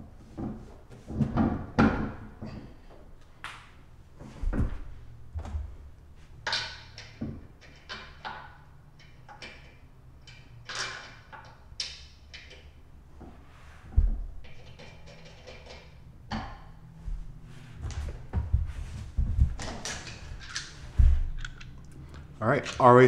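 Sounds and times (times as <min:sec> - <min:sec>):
heavier knocks: 0:17.8 - 0:19.9.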